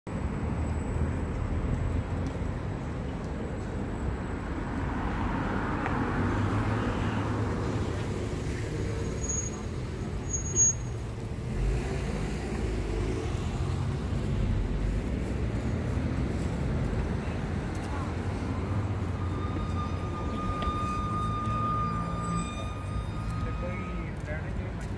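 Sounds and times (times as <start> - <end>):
passing cars rumbling: 0.1 - 24.9
high-pitched squeak: 9.0 - 11.0, 17.9 - 24.6.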